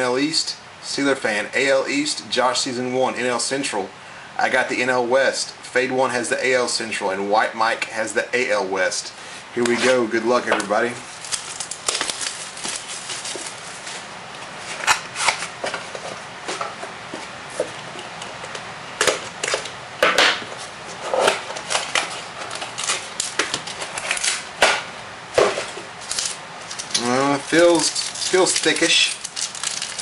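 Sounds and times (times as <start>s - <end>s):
plastic wrap and cardboard crackling: 10.6s - 15.5s, 21.6s - 24.5s, 26.0s - 30.0s.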